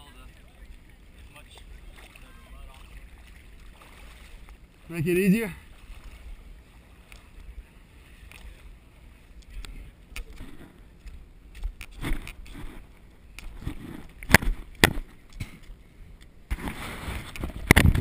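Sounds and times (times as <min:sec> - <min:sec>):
footsteps in wet mud: 0:00.6 - 0:04.6
wind rumbling on microphone: 0:16.5 - 0:18.0.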